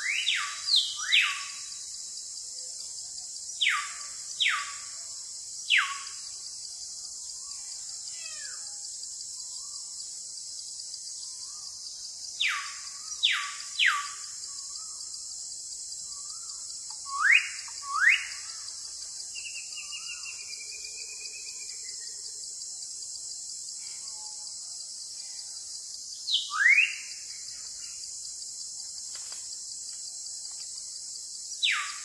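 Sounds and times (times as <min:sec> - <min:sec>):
high insect hiss: 0:00.0 - 0:32.0
bird whistled calls: 0:17.0 - 0:18.5, 0:26.3 - 0:27.2.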